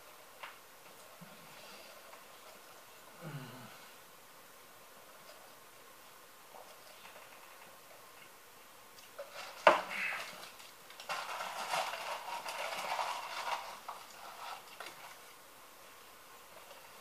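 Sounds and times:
paper wrappers crinkling: 9.0s - 15.4s.

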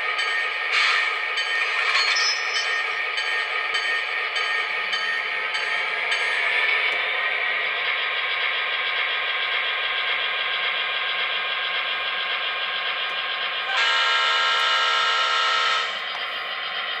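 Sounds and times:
diesel locomotive engine running: 0.0s - 17.0s
locomotive horn blast: 13.7s - 16.0s.

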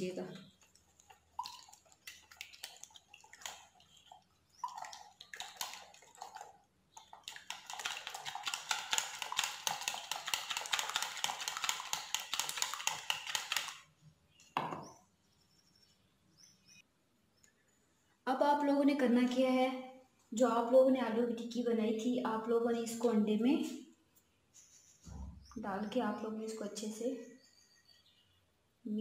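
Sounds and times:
whisk clicking against bowl: 0.6s - 13.8s.

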